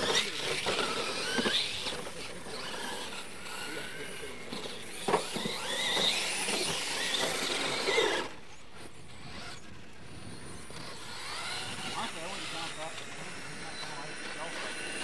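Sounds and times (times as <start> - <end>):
electric motors whining: 0.0 - 15.0.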